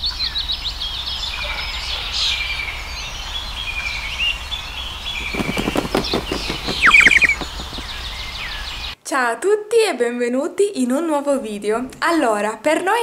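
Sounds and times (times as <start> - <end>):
small birds chirping: 0.0 - 9.0
fast run of clicks: 5.2 - 8.2.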